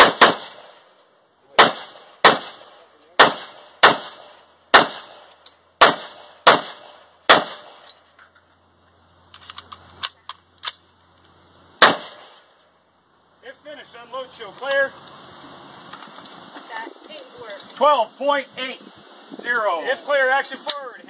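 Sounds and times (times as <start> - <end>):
rifle shots: 0.0 - 0.8, 1.5 - 7.8, 11.8 - 12.5.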